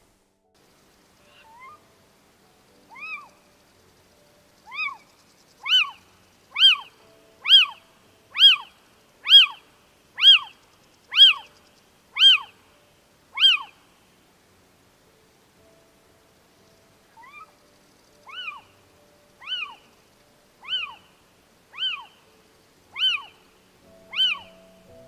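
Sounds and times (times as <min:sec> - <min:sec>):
owl calls: 0:01.2 - 0:01.8, 0:02.8 - 0:03.4, 0:04.6 - 0:12.6, 0:13.3 - 0:13.8, 0:17.1 - 0:17.6, 0:18.2 - 0:18.8, 0:19.4 - 0:19.9, 0:20.6 - 0:22.3, 0:22.9 - 0:24.9.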